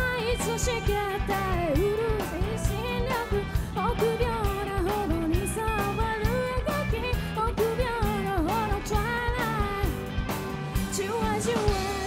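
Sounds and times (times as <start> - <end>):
woman singing: 0.0 - 10.2, 10.8 - 12.0
bass guitar: 0.0 - 12.0
electric guitar: 0.0 - 12.0.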